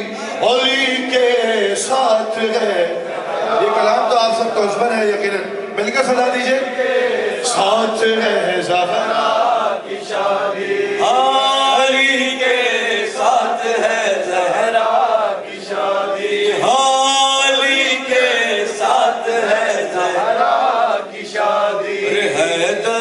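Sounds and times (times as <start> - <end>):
men singing a chant-like melody: 6.7 - 23.0.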